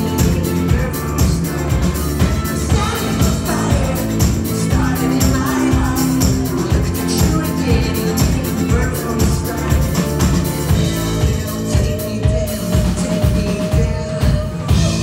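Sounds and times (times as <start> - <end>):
drum beat: 0.0 - 15.0
electric guitars: 0.0 - 15.0
keyboards: 0.0 - 15.0
person singing: 0.0 - 15.0.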